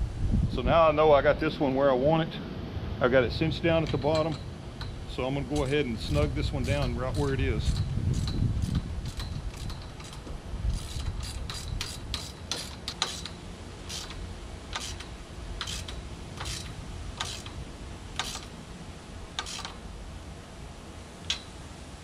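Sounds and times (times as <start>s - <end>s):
wrench clicks and scrapes: 5.6s - 17.6s, 18.2s - 18.6s, 19.4s - 19.8s, 21.2s - 21.6s.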